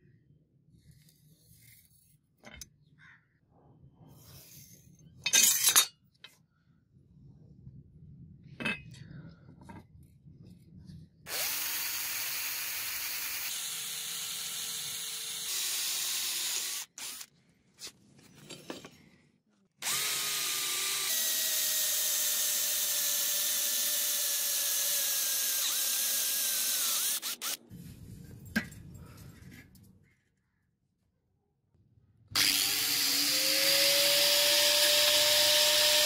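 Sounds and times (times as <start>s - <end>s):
electric drill boring through metal: 11.3s - 17.3s, 19.8s - 27.6s, 32.4s - 36.0s.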